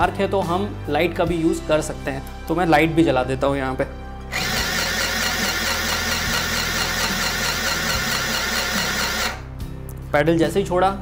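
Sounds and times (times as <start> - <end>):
electric sewing machine stitching: 4.3 - 9.5.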